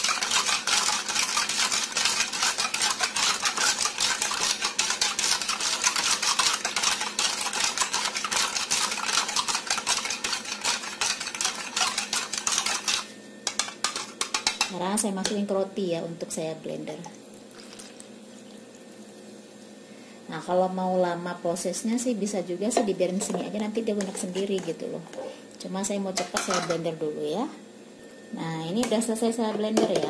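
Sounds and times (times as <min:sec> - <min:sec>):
spoon stirring in plastic jug: 0:00.0 - 0:14.7, 0:23.2 - 0:25.3.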